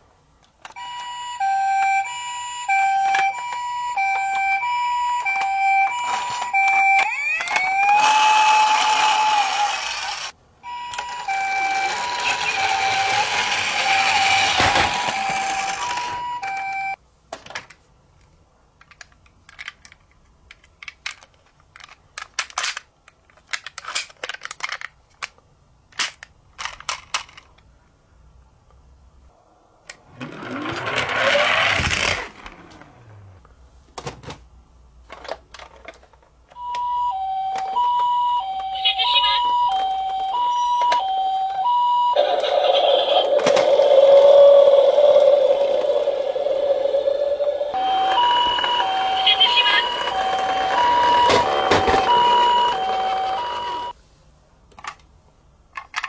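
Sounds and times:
toy siren with two alternating tones: 0:00.8 - 0:17.0, 0:36.6 - 0:42.6, 0:43.2 - 0:54.0
plastic toy vehicles clicking and knocking: 0:02.8 - 0:10.3, 0:10.9 - 0:27.7, 0:35.0 - 0:38.8, 0:39.4 - 0:41.8, 0:43.3 - 0:44.4, 0:47.8 - 0:53.9, 0:54.7 - 0:56.0.

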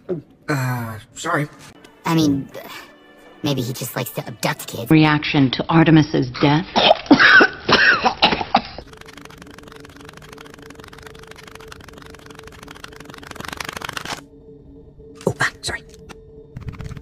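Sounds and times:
low hum: 0:08.8 - 0:17.0.

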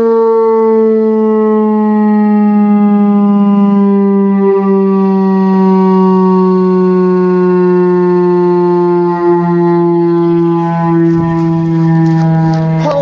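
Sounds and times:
rotating siren steady tone: 0:00.0 - 0:13.0.

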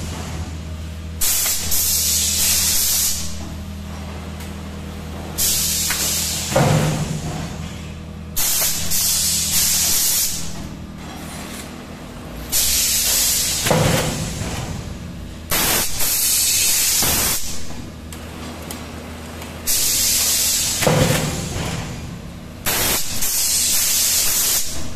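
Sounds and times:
low machine hum: 0:00.0 - 0:24.9
compressed air hissing bursts: 0:01.2 - 0:03.4, 0:05.4 - 0:06.6, 0:08.4 - 0:10.6, 0:12.5 - 0:14.4, 0:15.5 - 0:17.7, 0:19.6 - 0:21.6, 0:22.6 - 0:24.9.

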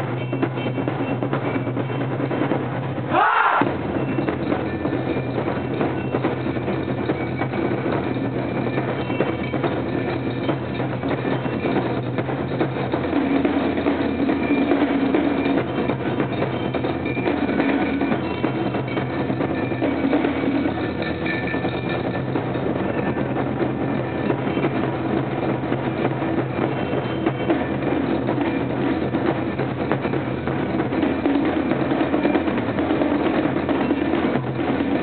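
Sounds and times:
drum ensemble playing: 0:00.0 - 0:35.0.

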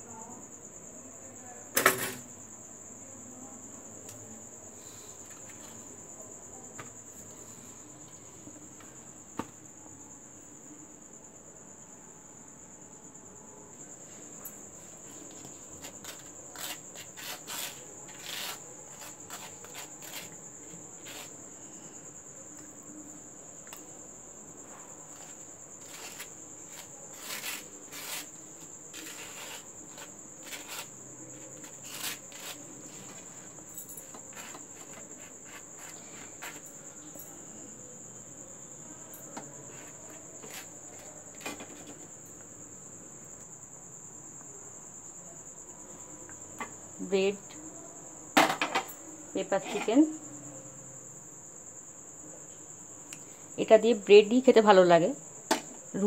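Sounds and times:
knife scraping toast: 0:15.8 - 0:20.4, 0:25.1 - 0:30.9, 0:31.6 - 0:32.7.

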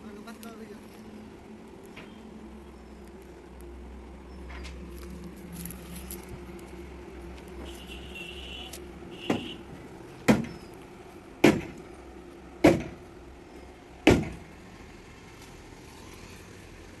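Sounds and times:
logs knocking together: 0:09.2 - 0:10.7, 0:11.4 - 0:11.9, 0:12.6 - 0:13.1, 0:14.1 - 0:14.5.

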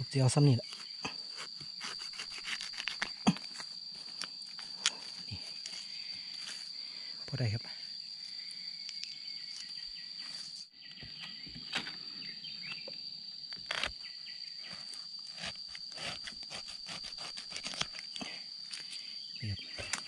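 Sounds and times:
knocks and crackles in undergrowth: 0:00.0 - 0:06.8, 0:08.3 - 0:16.4
high-pitched insect drone: 0:00.0 - 0:20.0.

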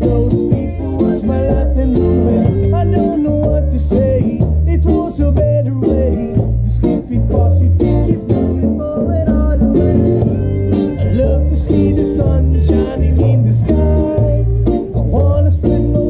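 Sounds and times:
reggae band playing: 0:00.0 - 0:16.0
pitch-bending melodic line: 0:00.1 - 0:15.9.

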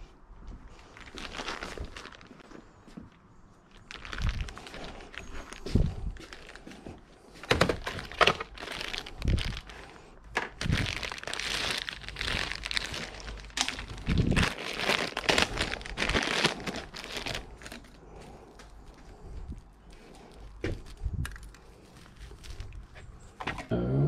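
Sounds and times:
rustling and crinkling: 0:00.0 - 0:23.7.

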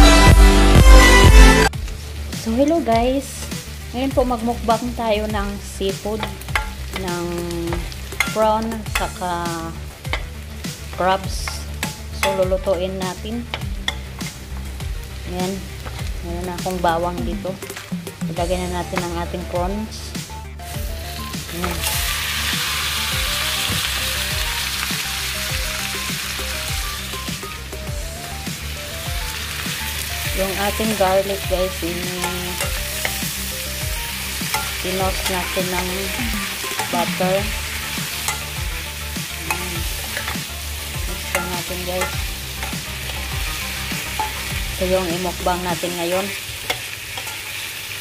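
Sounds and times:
prawns sizzling in wok: 0:01.7 - 0:48.0
metal spatula scraping a pan: 0:39.4 - 0:44.8, 0:46.6 - 0:47.9.

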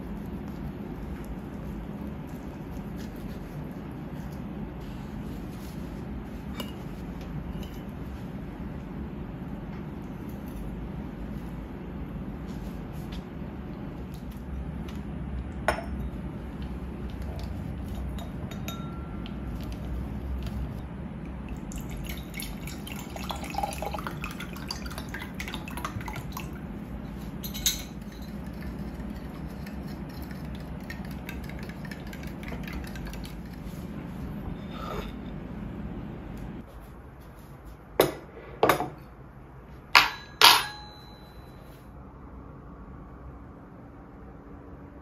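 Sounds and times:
steady low hum: 0:00.0 - 0:45.0
glass and plate clinking: 0:17.9 - 0:19.2, 0:27.4 - 0:28.4, 0:40.0 - 0:41.4
liquid pouring into glass: 0:21.5 - 0:26.6.

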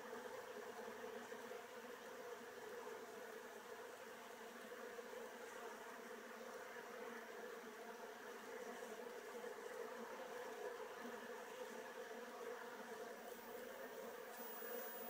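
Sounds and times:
honeybees buzzing: 0:13.2 - 0:15.0.

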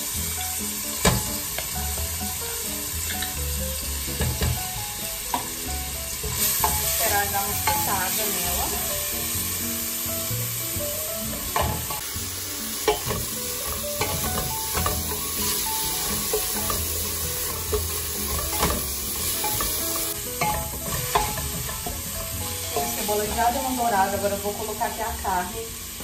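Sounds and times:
garlic and onion sizzling in oil: 0:00.0 - 0:26.0
spatula scraping metal pot: 0:12.8 - 0:23.4.

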